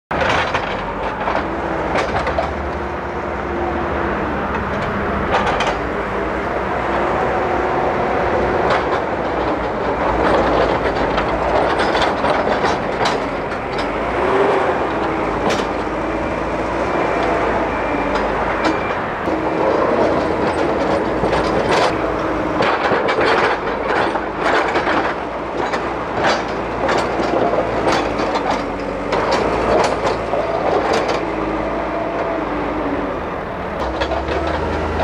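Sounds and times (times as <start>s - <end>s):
backhoe diesel engine running: 0.1s - 35.0s.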